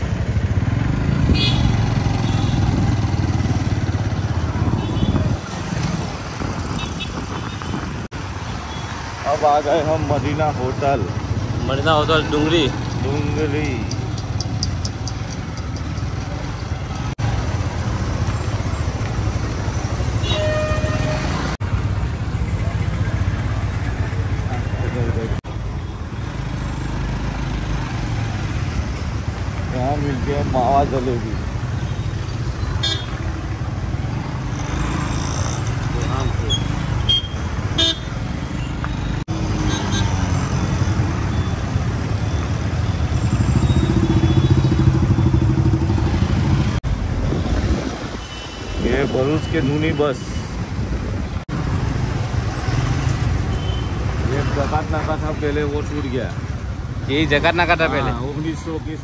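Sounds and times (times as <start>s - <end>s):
engine and road rumble: 0.0s - 59.0s
street traffic: 0.0s - 59.0s
vehicle horn: 1.3s - 2.8s, 20.2s - 21.6s, 37.1s - 38.1s.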